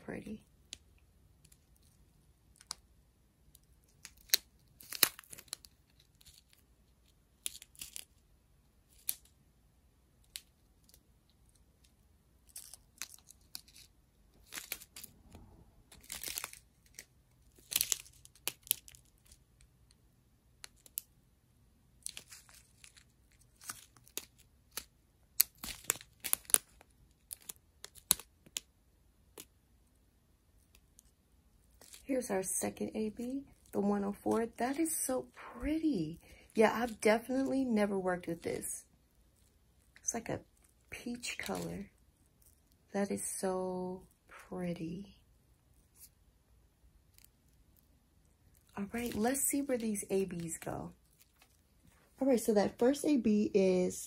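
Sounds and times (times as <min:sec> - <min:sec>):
plastic bags crinkling: 0:12.4 - 0:15.2, 0:15.9 - 0:19.4, 0:22.0 - 0:28.6, 0:48.5 - 0:52.8.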